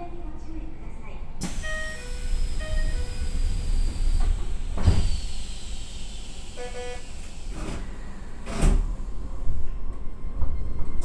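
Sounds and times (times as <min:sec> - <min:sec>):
train doors shutting thud: 0:01.4 - 0:09.1.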